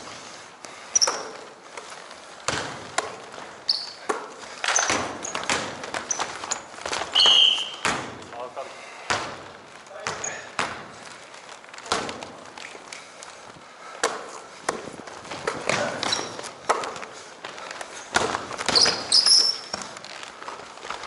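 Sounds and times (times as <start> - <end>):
running footsteps: 0.0 - 21.0
sneaker squeaks: 0.9 - 1.6, 3.4 - 8.1, 9.9 - 10.8, 15.5 - 17.0, 18.0 - 20.2
basketball bouncing on wooden floor: 2.4 - 8.3, 9.1 - 11.0, 14.7 - 17.1, 18.1 - 20.0.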